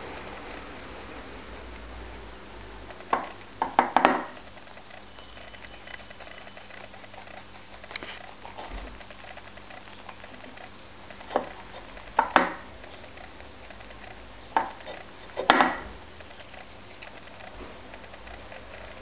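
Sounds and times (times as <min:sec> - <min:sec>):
ceramic bowl clinking: 0:01.7 - 0:08.7
rabbit crunching leaves: 0:07.4 - 0:19.0.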